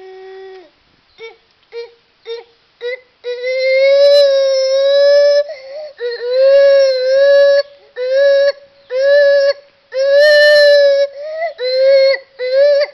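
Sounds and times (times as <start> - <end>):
gibbon hooting: 6.0 - 12.9.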